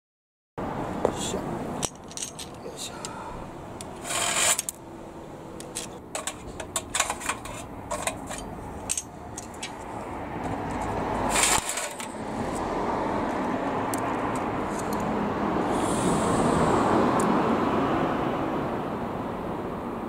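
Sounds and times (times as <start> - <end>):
passing vehicle road noise: 0.6 - 20.0
bicycle chain clinking: 1.8 - 2.6, 5.7 - 9.7.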